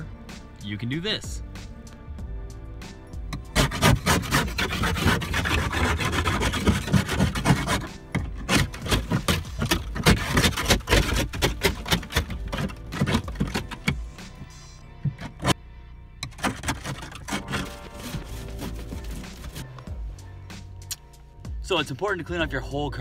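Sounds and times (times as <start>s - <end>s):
ice scraper scraping windshield: 3.4s - 15.6s, 16.2s - 19.8s
ice cracking: 16.3s - 19.8s.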